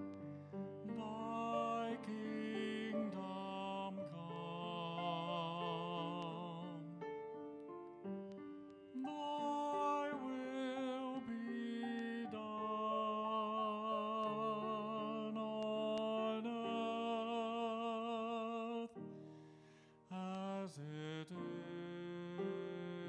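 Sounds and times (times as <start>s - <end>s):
grand piano chords: 0.0s - 23.0s
person singing with vibrato: 0.8s - 7.4s, 8.8s - 19.1s.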